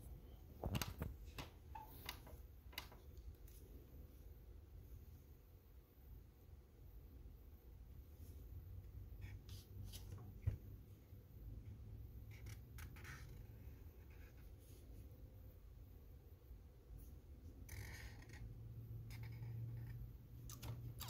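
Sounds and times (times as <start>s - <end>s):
marker scratching on paper: 9.2s - 10.2s, 12.3s - 14.8s, 19.1s - 21.0s.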